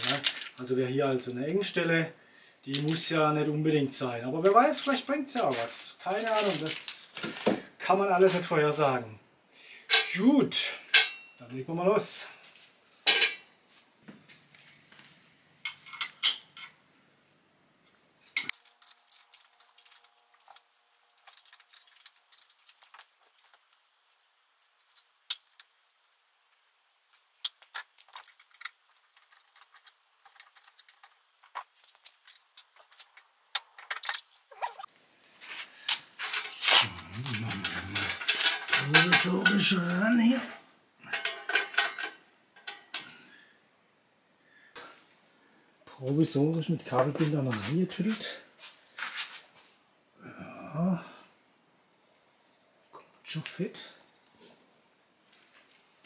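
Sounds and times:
metallic clinks and rattles: 18.4 - 23.6, 36.2 - 39.8, 40.4 - 43.1
rattling and scraping: 18.4 - 23.6, 27.5 - 43.1.

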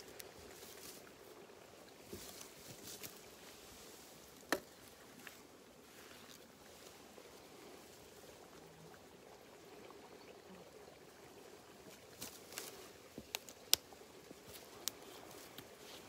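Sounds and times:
faint outdoor hush: 0.0 - 16.0
sharp snaps and clicks: 13.2 - 13.9, 14.5 - 15.7.

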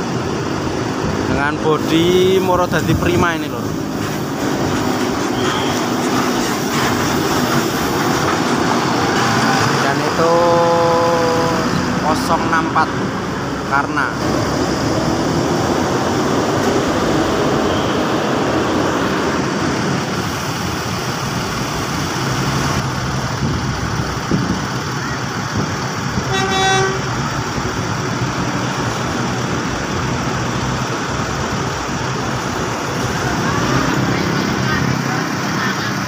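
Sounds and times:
diesel bus engines running: 0.0 - 36.0
bus horn toot: 5.3 - 5.8, 26.2 - 27.2.

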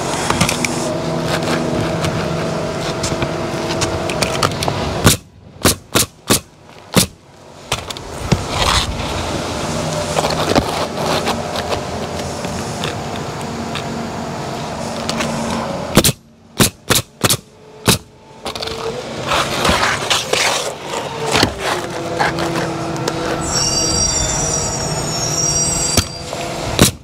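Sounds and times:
nail gun firing: 5.0 - 7.2, 16.0 - 18.1
shingles scraping and rustling: 7.7 - 13.2, 18.4 - 23.7.

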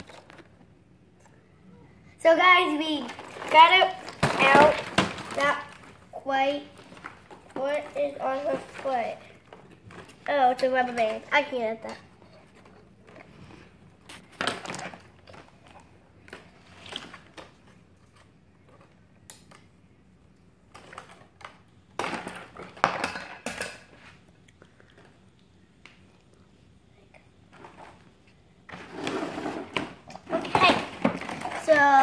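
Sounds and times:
packaging rustling and clicking: 0.0 - 0.7, 3.0 - 6.0.

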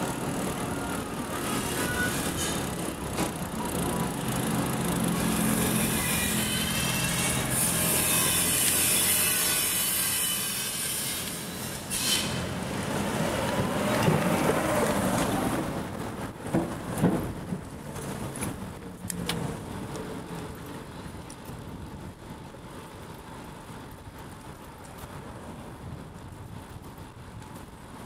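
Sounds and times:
vehicle passing by: 12.3 - 16.1.

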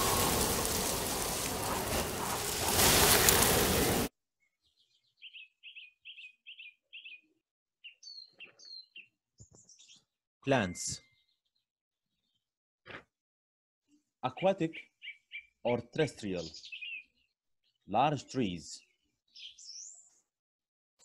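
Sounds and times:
loud even noise: 0.0 - 4.1
songbird chirping: 0.0 - 12.5, 14.2 - 20.3.

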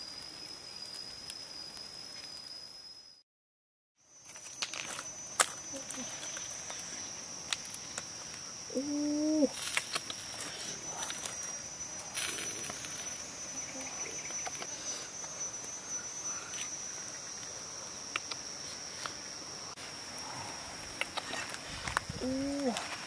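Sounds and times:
insects droning: 0.0 - 3.2, 4.0 - 23.0.

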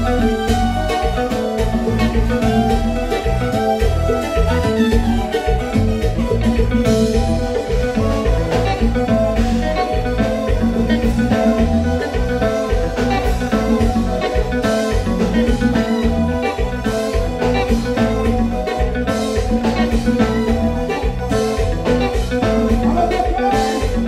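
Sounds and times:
bass guitar: 0.0 - 24.0
drum kit beat: 0.0 - 24.0
electric guitar: 0.0 - 24.0.

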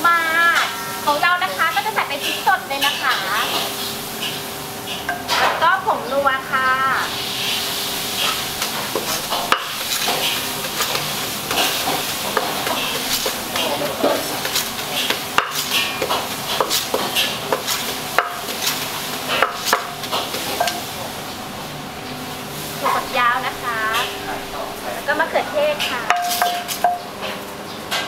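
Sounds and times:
pestle pounding in a mortar: 8.9 - 20.8.

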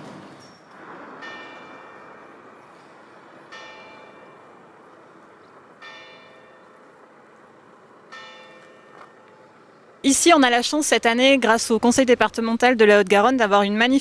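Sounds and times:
church bell tolling: 0.8 - 9.9.

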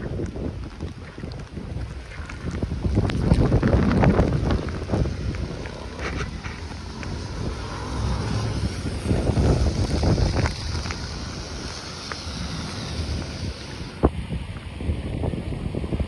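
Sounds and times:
wind buffeting microphone: 0.0 - 16.0
steady hiss: 4.1 - 15.5.

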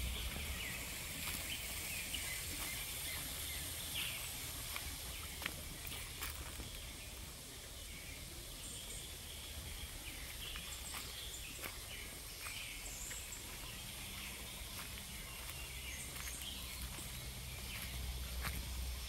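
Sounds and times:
low rumble: 0.0 - 1.2
steady high hiss: 0.0 - 19.0.

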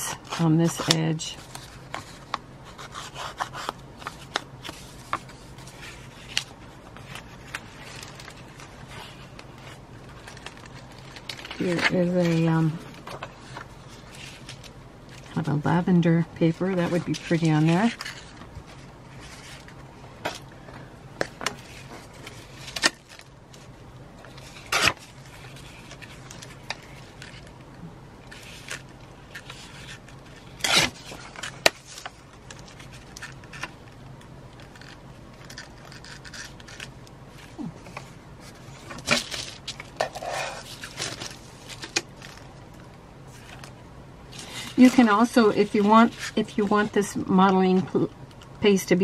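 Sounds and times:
paper ripping and rustling: 28.3 - 33.8, 34.6 - 42.5.

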